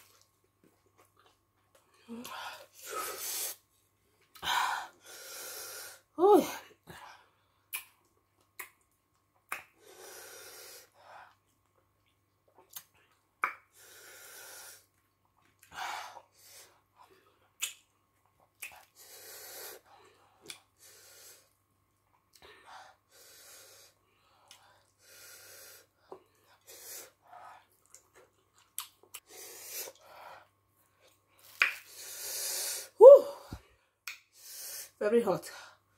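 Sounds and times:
woman speaking: 6.2 - 6.6, 35.0 - 35.6
wet mouth clicks and smacks: 7.7 - 9.7, 11.7 - 13.7, 17.6 - 18.9, 27.8 - 29.3, 31.4 - 31.9, 34.0 - 34.3
chewing: 27.6 - 29.3.

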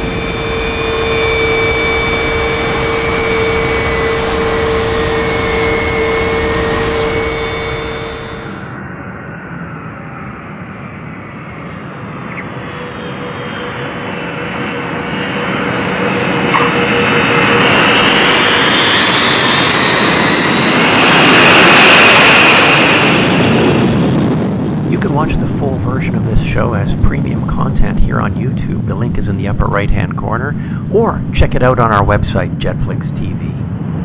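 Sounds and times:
rising high jet whine: 0.0 - 10.6, 11.2 - 34.0
jet engines roaring at takeoff: 0.0 - 34.0.

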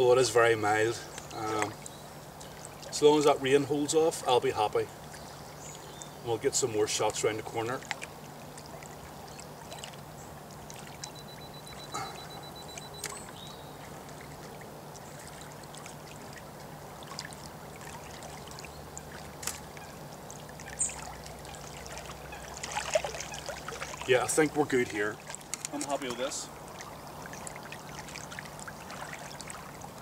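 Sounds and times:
small waves lapping: 0.0 - 30.0.

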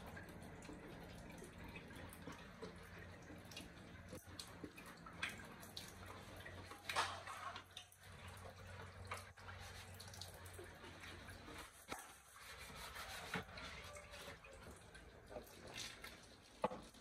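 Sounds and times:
low steady hum: 0.0 - 11.8
water dripping: 0.0 - 17.0.

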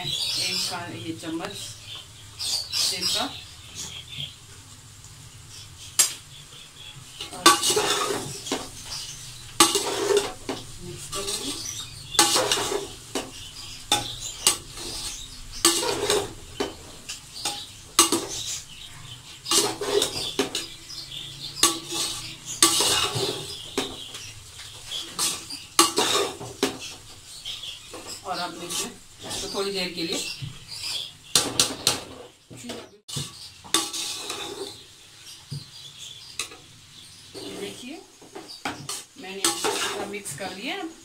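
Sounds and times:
metal spatula scraping a pot: 5.5 - 32.4, 33.1 - 34.9, 37.3 - 40.6.

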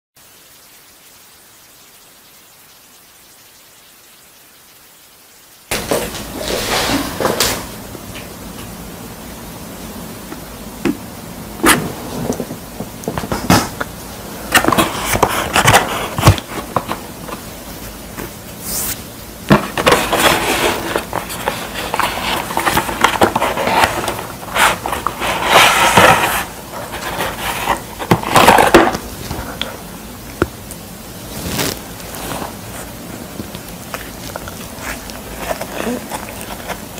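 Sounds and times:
cardboard box scraping and rustling: 19.6 - 29.4, 31.2 - 32.9.

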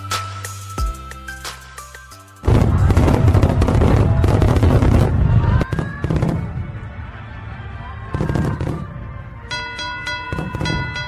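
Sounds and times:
background music: 0.0 - 11.0
fireworks whistling: 2.4 - 6.5
fireworks crackling and bangs: 2.4 - 6.9, 8.2 - 11.0.

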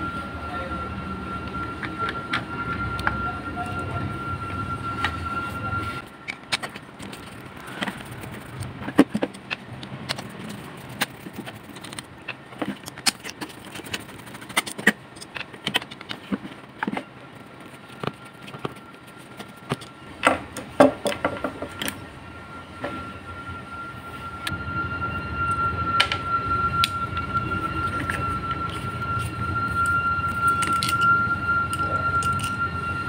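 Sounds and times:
metal fan parts clicking: 6.0 - 22.0, 27.9 - 32.6.

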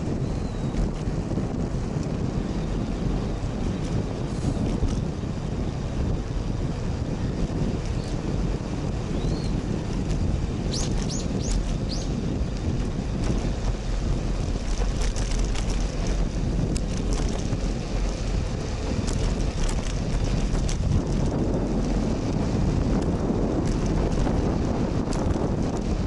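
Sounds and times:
wind buffeting microphone: 0.0 - 26.0
light ticks and rattles: 9.9 - 22.0.

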